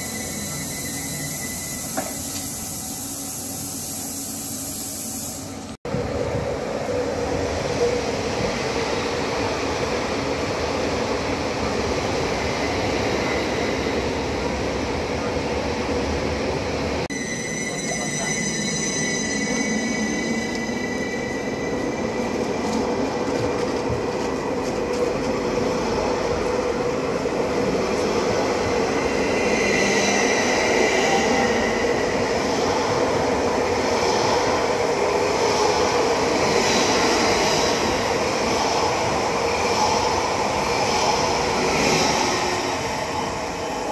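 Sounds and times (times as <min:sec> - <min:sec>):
train wheels rumbling on rail: 0:17.7 - 0:43.9.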